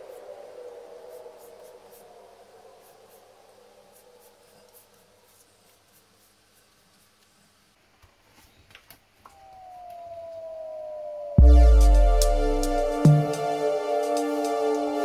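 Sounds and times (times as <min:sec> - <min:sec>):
brush stroking rice paper: 0:01.1 - 0:07.6.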